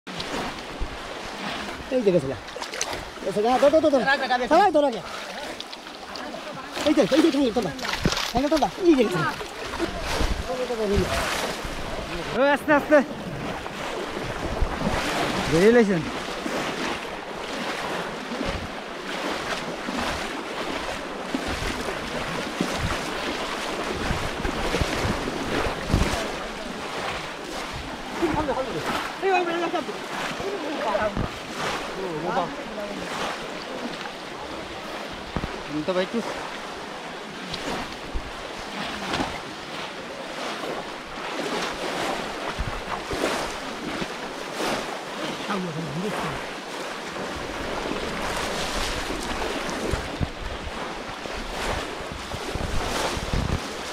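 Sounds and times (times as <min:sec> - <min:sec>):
muddy water sloshing and splashing: 0:00.1 - 0:53.9
wind on microphone: 0:07.7 - 0:12.4, 0:13.1 - 0:17.4, 0:21.0 - 0:29.0, 0:41.9 - 0:44.1, 0:47.2 - 0:53.9.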